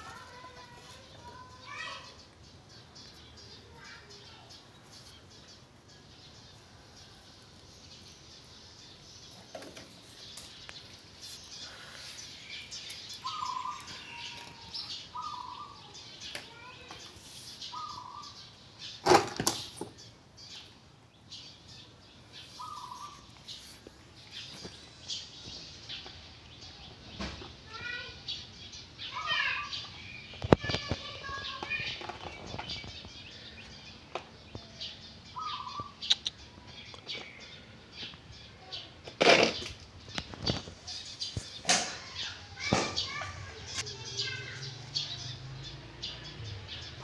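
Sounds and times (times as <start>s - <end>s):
loud sharp knock: 42.6s - 43.0s.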